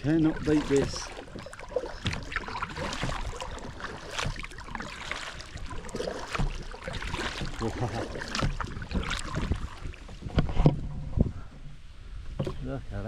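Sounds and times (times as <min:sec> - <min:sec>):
water dripping off paddle: 0:00.0 - 0:10.1
kayak paddle strokes in water: 0:00.0 - 0:12.7.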